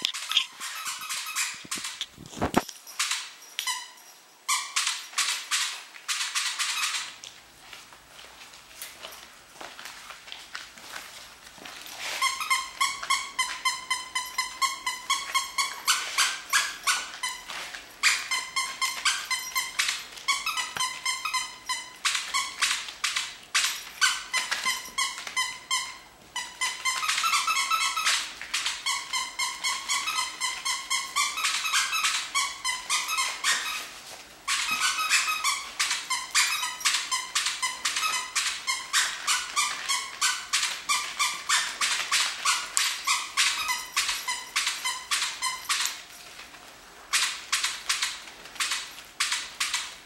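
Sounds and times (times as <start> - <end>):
puppies yipping and squealing: 0.0 - 5.0, 26.5 - 46.0.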